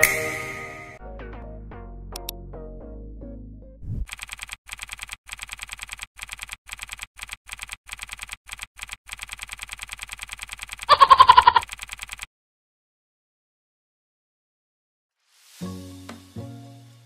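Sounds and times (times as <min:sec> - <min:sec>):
keyboard typing clicks: 0:04.1 - 0:12.3.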